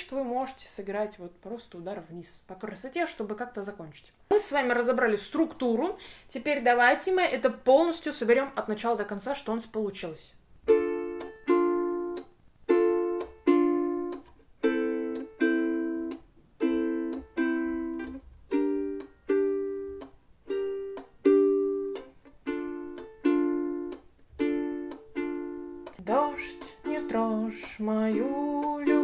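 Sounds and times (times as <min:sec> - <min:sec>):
ukulele strumming: 0:10.6 - 0:29.0.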